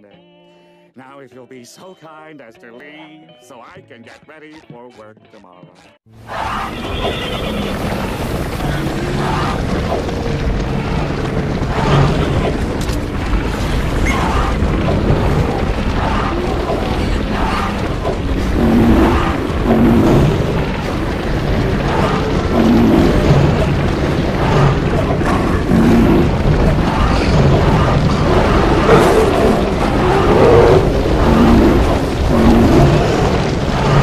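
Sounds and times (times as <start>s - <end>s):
running hooves rumbling: 6.2s - 34.0s
animal calls: 6.3s - 10.2s.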